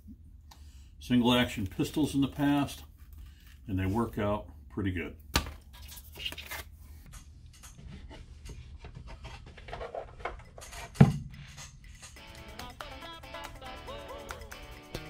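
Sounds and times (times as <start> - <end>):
objects scraping on a work surface: 7.8 - 11.7
music: 11.8 - 15.0.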